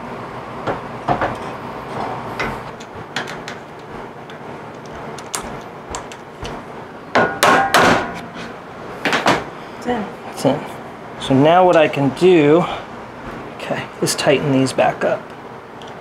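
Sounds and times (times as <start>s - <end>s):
loud knocks on wood block: 7.2s - 8.1s.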